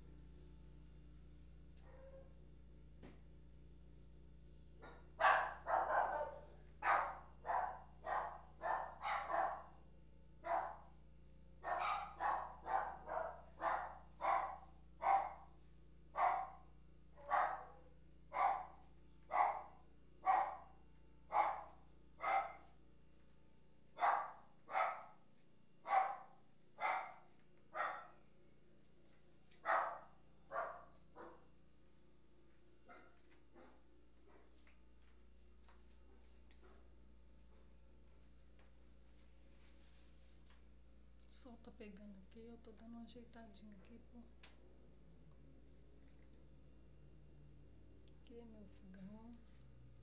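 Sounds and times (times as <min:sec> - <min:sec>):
dog barking: 0:01.8 - 0:02.4, 0:04.8 - 0:09.8, 0:10.4 - 0:11.0, 0:11.6 - 0:22.8, 0:24.0 - 0:25.2, 0:25.8 - 0:28.2, 0:29.6 - 0:31.5, 0:32.9 - 0:34.6.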